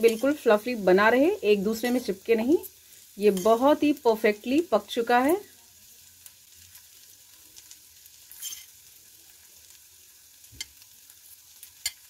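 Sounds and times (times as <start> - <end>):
fork stirring in a pot: 0.0 - 0.4, 3.3 - 3.7, 8.3 - 8.7
faint steady hiss: 0.0 - 12.0.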